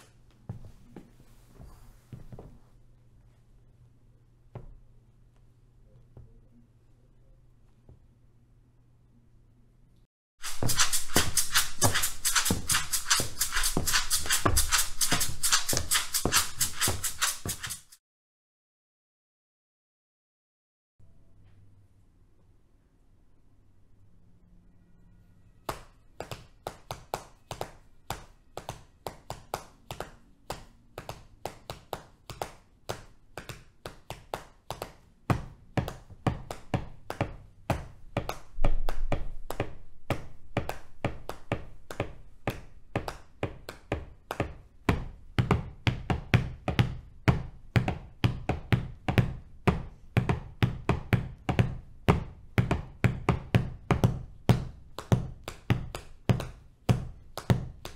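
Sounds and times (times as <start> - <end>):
hands tapping on thighs: 25.7 - 57.9.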